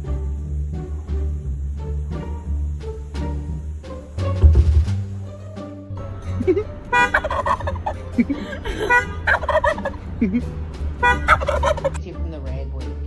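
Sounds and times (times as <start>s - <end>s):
wild turkey gobbling: 6.4s - 12.0s.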